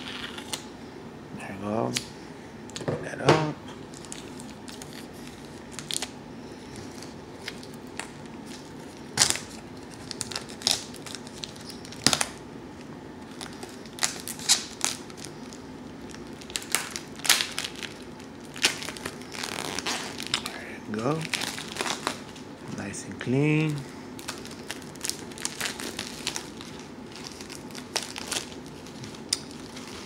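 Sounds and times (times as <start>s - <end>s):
plastic shrink wrap crackling: 6.8s - 12.4s, 13.3s - 22.4s, 23.6s - 30.0s.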